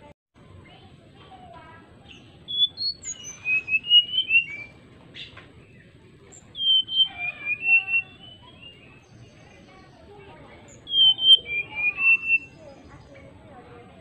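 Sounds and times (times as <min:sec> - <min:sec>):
bird singing whistled notes: 0:02.1 - 0:10.0, 0:10.6 - 0:13.2.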